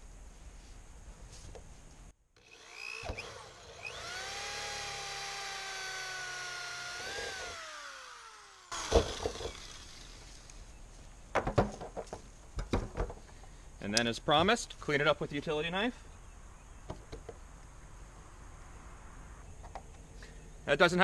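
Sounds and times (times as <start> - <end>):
power drill cutting plastic: 2.4 - 10.4.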